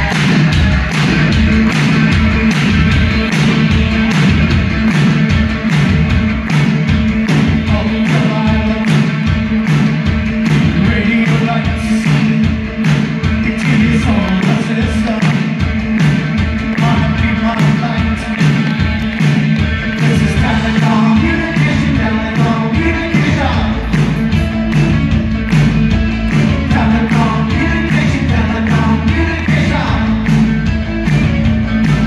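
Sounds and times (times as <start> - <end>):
bass: 0.0 - 32.0
drum beat: 0.0 - 32.0
singer's voice: 0.0 - 32.0.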